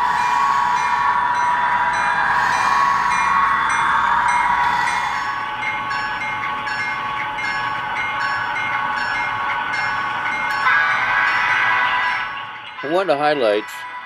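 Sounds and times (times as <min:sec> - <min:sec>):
model train engine running: 0:00.0 - 0:14.0
train horn chord: 0:10.5 - 0:12.4.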